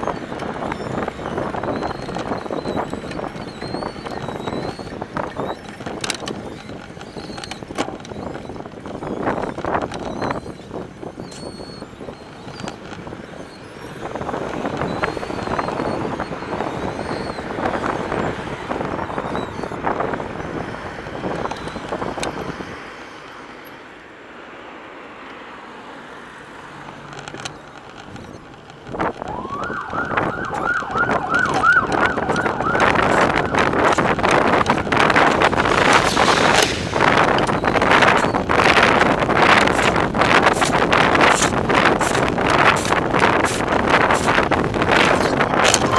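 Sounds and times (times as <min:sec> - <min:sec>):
bike rattling over rough ground: 0:00.0 - 0:20.0, 0:26.9 - 0:45.9
bike tyres rolling: 0:00.0 - 0:22.8, 0:26.1 - 0:45.9
warbling siren: 0:29.2 - 0:38.3.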